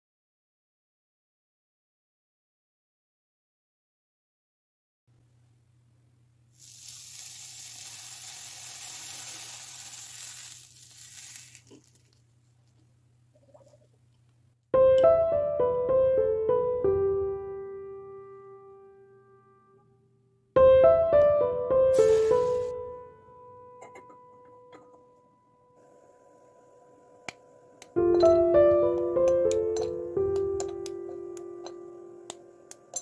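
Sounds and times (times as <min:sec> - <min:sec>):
soft hiss: 0:06.4 - 0:14.5, 0:21.9 - 0:22.8
piano music: 0:14.8 - 0:20.0, 0:20.6 - 0:25.8, 0:26.7 - 0:33.0.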